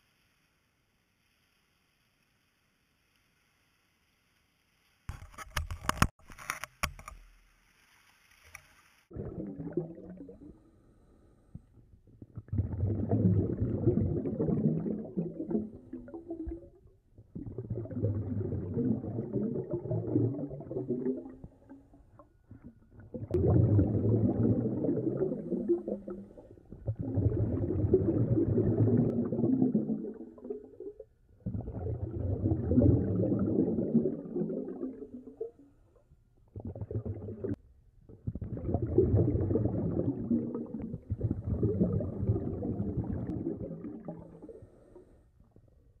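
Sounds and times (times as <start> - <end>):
underwater bubbles gurgling: 9.1 - 10.9, 11.6 - 45.1.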